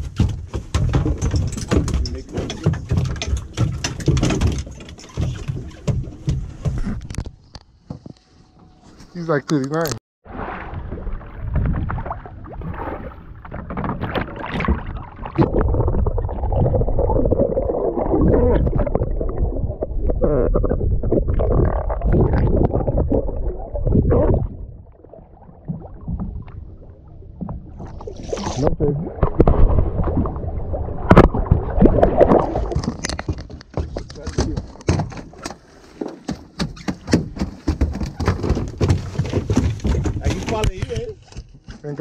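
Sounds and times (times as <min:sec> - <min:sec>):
water splashing and gurgling: 0:00.0 - 0:07.5, 0:10.2 - 0:41.3
sharp splashes or knocks: 0:10.2 - 0:17.3, 0:27.5 - 0:41.2
muffled underwater rumble: 0:10.6 - 0:33.0.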